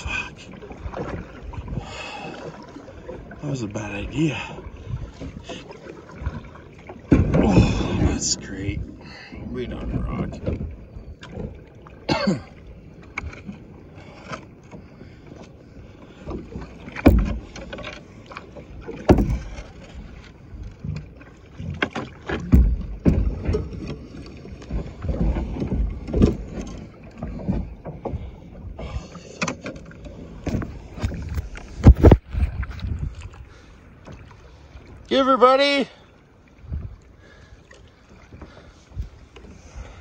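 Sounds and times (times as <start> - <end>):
water slapping against kayak hull: 0.0 - 40.0
thumps and knocks on hull: 4.8 - 8.8, 9.6 - 12.4, 16.2 - 33.4.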